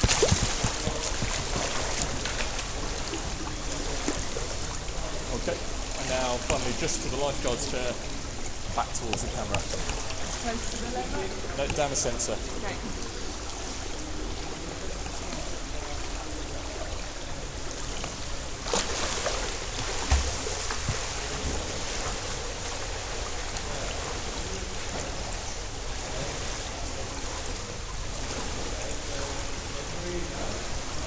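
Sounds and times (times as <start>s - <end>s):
pool water splashing: 0.0s - 31.0s
underwater rush of water: 0.0s - 31.0s.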